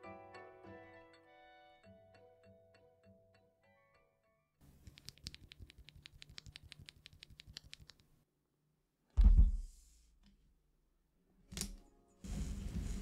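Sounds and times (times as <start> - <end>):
keyboard switch clicking: 4.8 - 8.1
loud low thump: 9.2 - 9.7.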